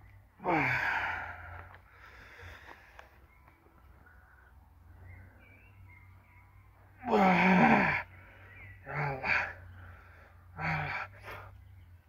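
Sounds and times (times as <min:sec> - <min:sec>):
man straining cry: 0:07.0 - 0:08.0.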